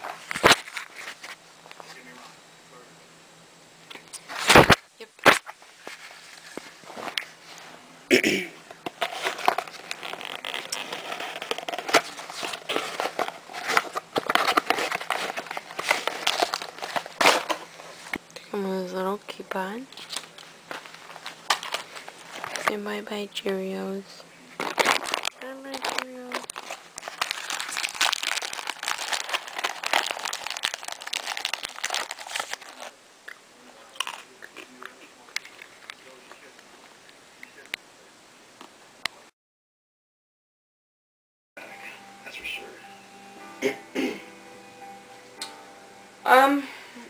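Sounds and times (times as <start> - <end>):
cardboard and paper crackling: 0.0 - 2.2, 8.8 - 18.2, 19.9 - 22.8, 24.5 - 33.0
cereal box and bag crinkling: 8.9 - 18.2, 19.9 - 23.0, 24.6 - 33.0, 33.8 - 36.5
cardboard box being opened: 9.0 - 17.7.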